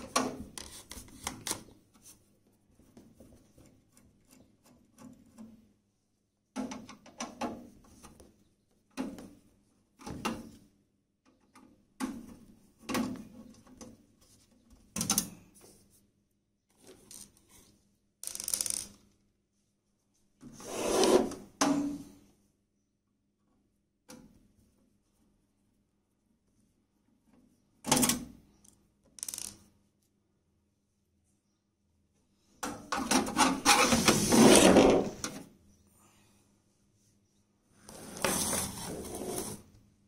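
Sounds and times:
screws scraping and clicking: 18.2 - 19.0, 29.2 - 29.6.

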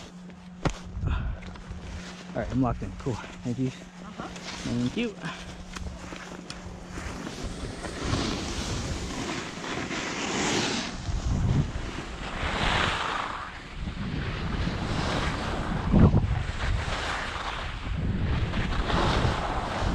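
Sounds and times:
skis carving on snow: 1.8 - 19.9
wind buffeting microphone: 10.9 - 12.9, 13.7 - 19.9.

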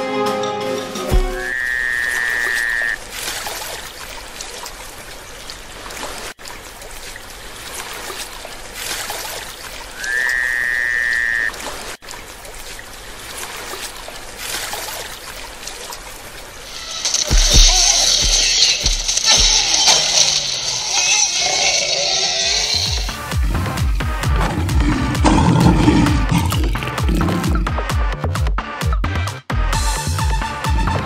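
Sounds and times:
high whistling call: 1.4 - 3.0, 10.0 - 11.6.

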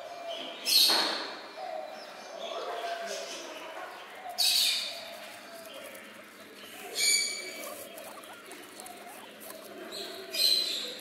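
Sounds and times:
guinea pig squeaking: 4.3 - 11.0.

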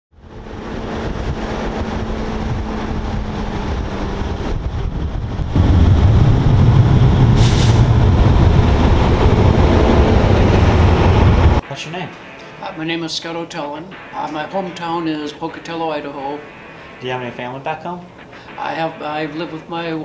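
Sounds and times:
diesel truck engine rumble: 0.2 - 11.6
air hiss: 7.4 - 7.9.

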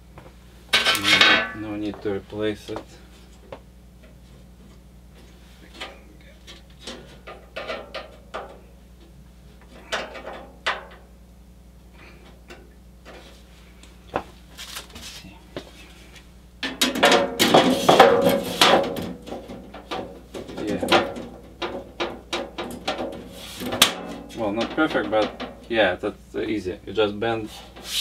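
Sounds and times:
metallic rattling and scraping: 5.7 - 8.7, 16.6 - 25.9.

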